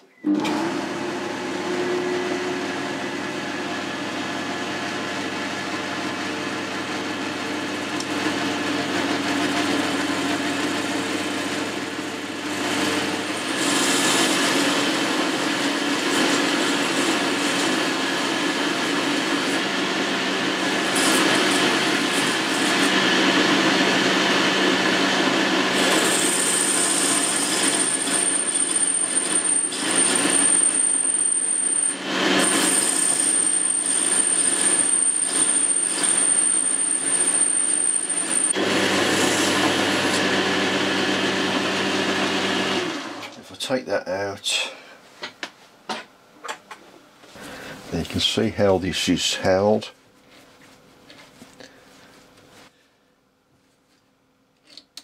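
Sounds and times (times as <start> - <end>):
metal lathe humming: 7.4 - 43.3
grooving tool cutting metal: 20.8 - 23.0
high-pitched tool squeal: 25.9 - 38.6.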